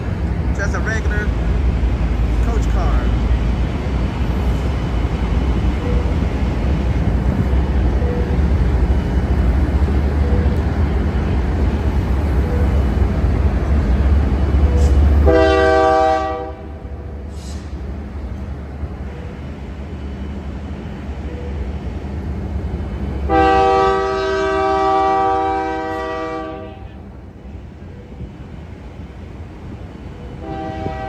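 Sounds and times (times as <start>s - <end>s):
freight train rumbling: 0.0s - 31.0s
train horn: 14.7s - 16.9s, 23.3s - 27.0s, 30.4s - 31.0s.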